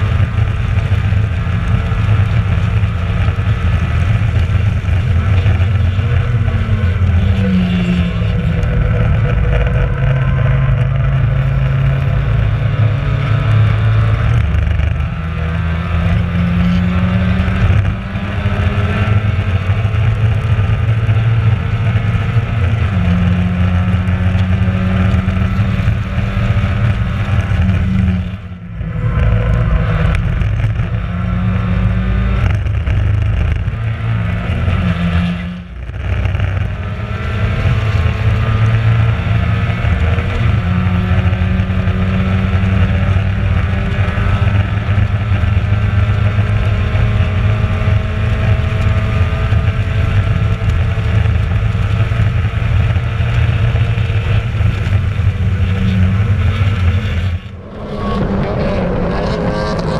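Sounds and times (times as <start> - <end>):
race car engine running hard: 0.0 - 59.9.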